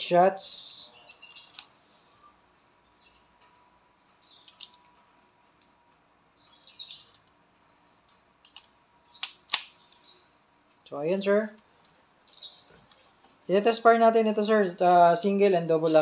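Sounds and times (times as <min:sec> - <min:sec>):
shells clicking into revolver cylinder: 0:08.4 - 0:10.1.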